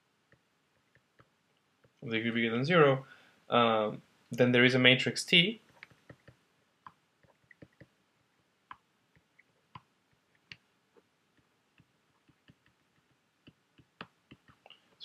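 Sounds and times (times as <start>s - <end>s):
stylus tapping on tablet screen: 5.6s - 8.0s, 11.3s - 14.7s.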